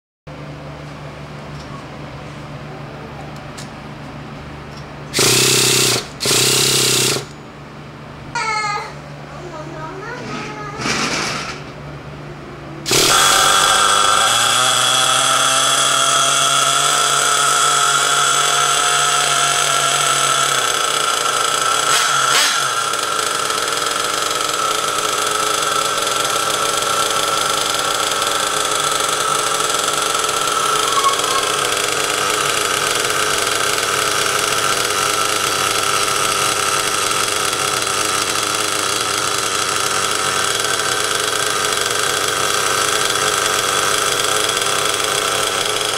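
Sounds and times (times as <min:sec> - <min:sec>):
nitro engine idling: 0:04.8 - 0:07.4, 0:12.8 - 0:45.9.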